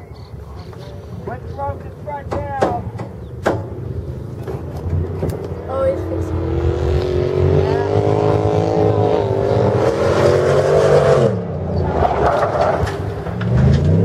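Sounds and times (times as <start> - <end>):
off-road vehicle engine revving: 3.2 - 14.0.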